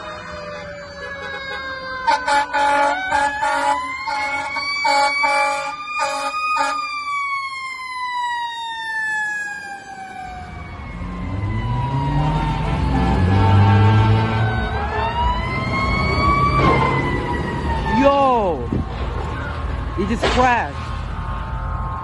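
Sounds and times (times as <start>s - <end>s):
fire engine siren wailing: 0.0s - 22.0s
short horn blasts: 1.2s - 6.8s.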